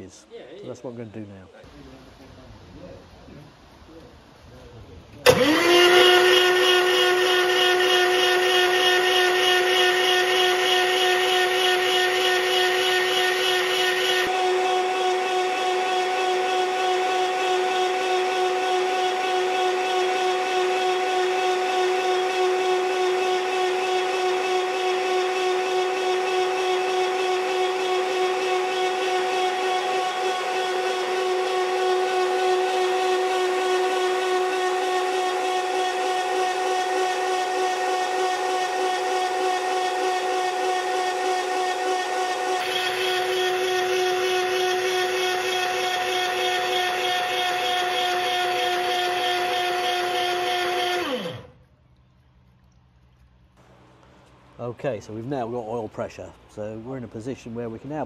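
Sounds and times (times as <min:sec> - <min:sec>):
engine cranking on starter whine: 0:05.2 - 0:51.6.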